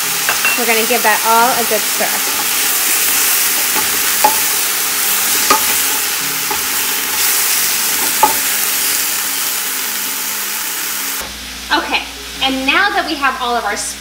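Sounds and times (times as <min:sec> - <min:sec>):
vegetables sizzling in hot oil: 0:00.0 - 0:14.0
wooden spoon knocking on pot: 0:03.5 - 0:04.6, 0:05.4 - 0:07.3, 0:07.9 - 0:08.5.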